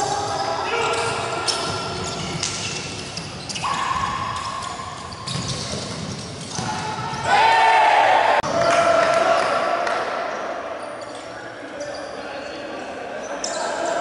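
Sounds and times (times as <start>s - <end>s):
ball kicked and bouncing on wooden court: 0.9s - 7.3s
loud shout: 6.7s - 9.8s.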